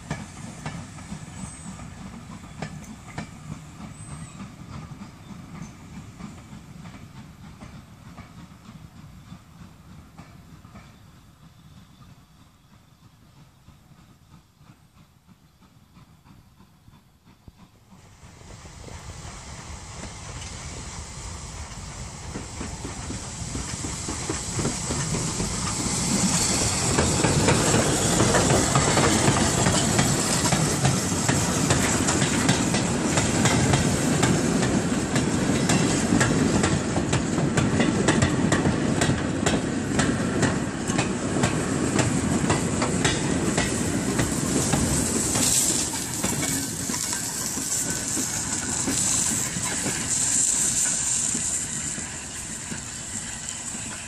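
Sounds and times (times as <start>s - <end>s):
steam locomotive passing: 0.0s - 54.0s
wagon wheels clattering over rail joints: 42.5s - 52.5s.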